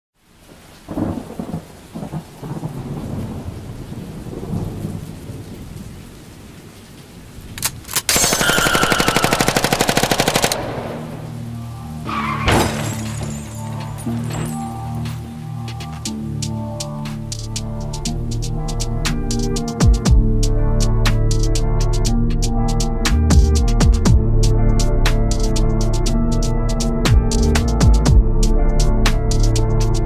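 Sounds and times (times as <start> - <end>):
rain-like hiss: 0.2 - 8.2, 8.8 - 19.8
machine-gun burst: 8.1 - 11.2
low synth bass line: 17.5 - 29.8.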